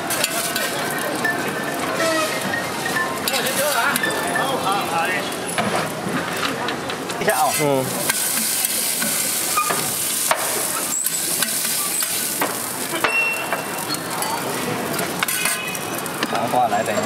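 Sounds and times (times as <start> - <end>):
metal utensils clicking and scraping: 0.0 - 17.0
food sizzling on a griddle: 7.2 - 17.0.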